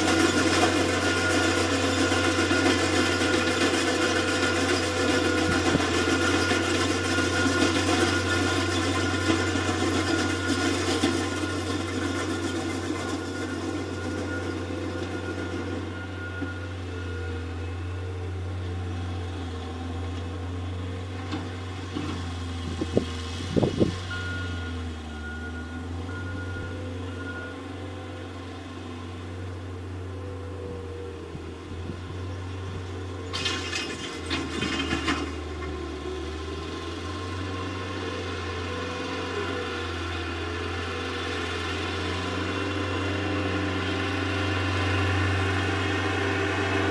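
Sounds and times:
tractor engine droning: 0:00.0 - 0:46.9.

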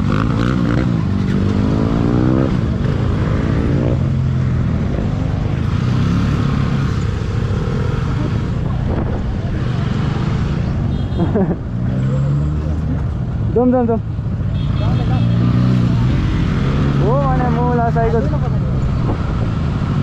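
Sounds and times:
motorcycle engine accelerating: 0:00.0 - 0:10.7.

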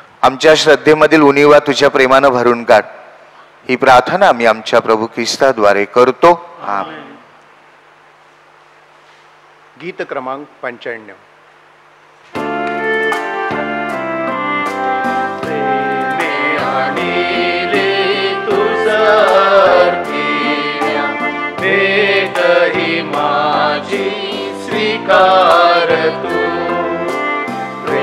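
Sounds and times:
keyboard chords: 0:12.4 - 0:28.0
voices singing a hymn: 0:14.7 - 0:28.0.

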